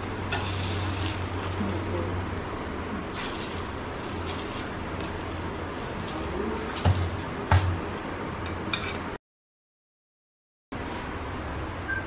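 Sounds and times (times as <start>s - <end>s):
griddle hissing and humming: 0.0s - 9.2s, 10.8s - 12.0s
metal tongs clacking on griddle: 0.3s - 1.5s.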